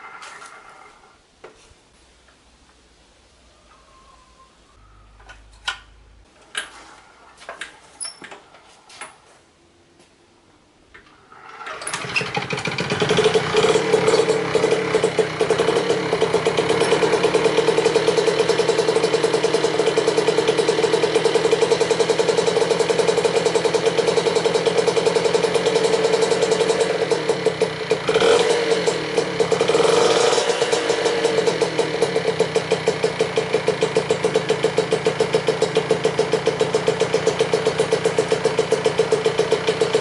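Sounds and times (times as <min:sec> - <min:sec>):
moped engine running: 0:11.3 - 0:40.0.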